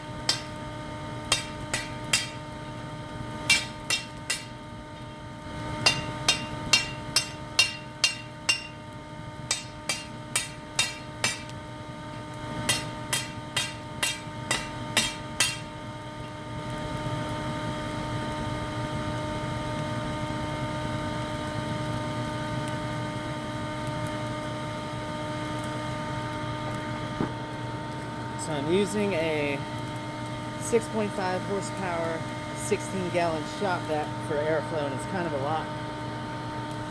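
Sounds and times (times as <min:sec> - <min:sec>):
forge blower hum: 0:00.0 - 0:36.9
hammer striking hot steel on anvil: 0:00.2 - 0:00.6, 0:01.2 - 0:02.5, 0:03.4 - 0:04.6, 0:05.8 - 0:11.6, 0:12.6 - 0:15.8.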